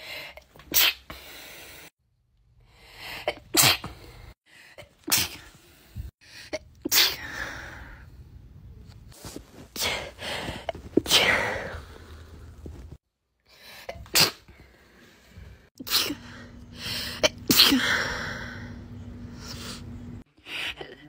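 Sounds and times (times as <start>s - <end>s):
woman sneezing: 15.8s - 16.2s, 17.2s - 18.0s.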